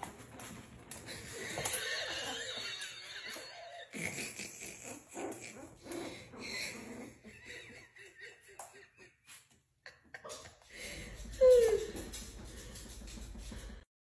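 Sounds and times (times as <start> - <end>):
person laughing: 1.1 - 5.1, 6.4 - 12.1.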